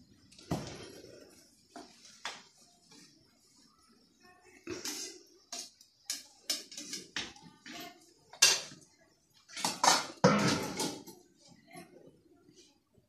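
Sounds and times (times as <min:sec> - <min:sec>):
steel dishes and utensils clattering: 0:04.7 - 0:08.8, 0:09.4 - 0:11.3.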